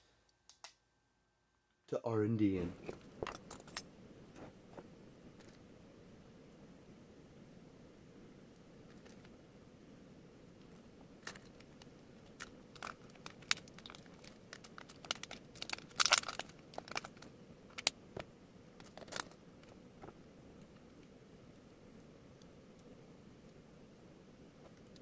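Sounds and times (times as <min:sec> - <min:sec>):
packaging tearing and crinkling: 0:12.3 - 0:17.9.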